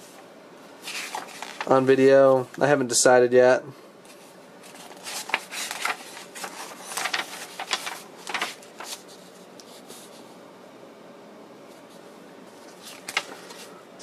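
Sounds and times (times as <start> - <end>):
paper pages rustling: 0.8 - 1.9, 4.1 - 10.3, 11.7 - 13.8.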